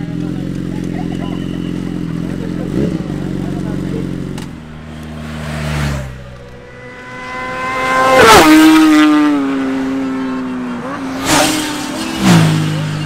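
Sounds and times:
other motorcycle engine: 0.0s - 13.0s
motorcycle passing at speed: 0.2s - 13.0s.

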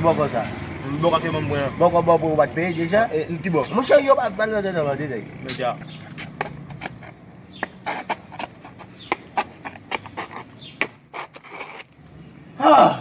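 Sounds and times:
walking stick tapping on pavement: 5.5s - 11.9s
footsteps on pavement: 5.6s - 12.0s.

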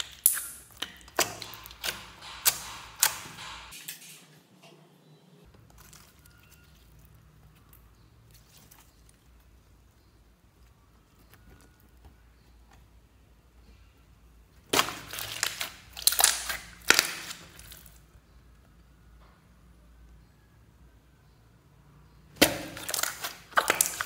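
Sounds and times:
slime popping and crackling: 0.0s - 3.8s, 14.6s - 18.0s, 22.3s - 24.0s
soft slime handling: 5.5s - 18.2s.

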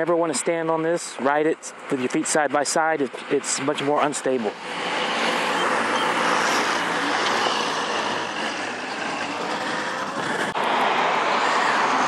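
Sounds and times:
scooter tyre noise on concrete: 5.0s - 12.0s.

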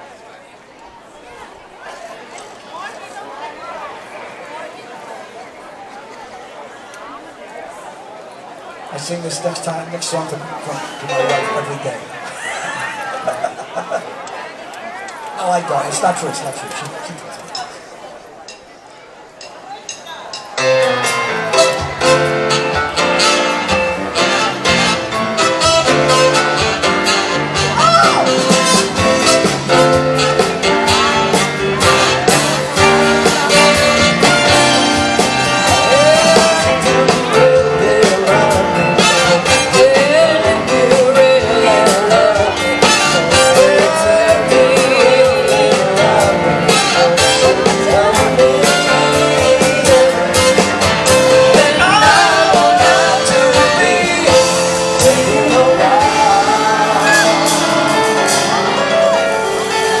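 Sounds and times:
live band playing upbeat song: 9.0s - 60.0s
lead singer singing: 32.6s - 60.0s.

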